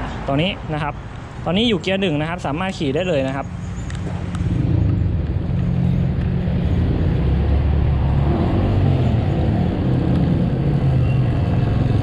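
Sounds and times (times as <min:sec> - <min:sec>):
electric motorbike low rumble: 0:04.3 - 0:12.0.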